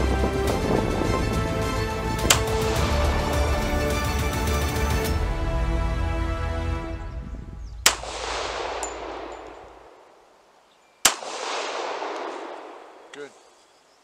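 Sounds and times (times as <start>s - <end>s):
pistol shots with echo: 7.9s - 10.1s, 11.0s - 13.3s.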